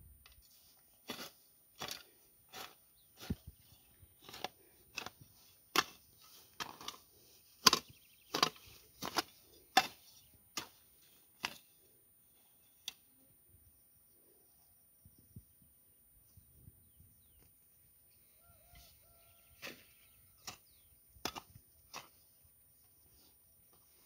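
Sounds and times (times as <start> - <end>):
hoe chopping into soil: 1.0 - 3.5, 4.2 - 11.8, 19.5 - 22.3.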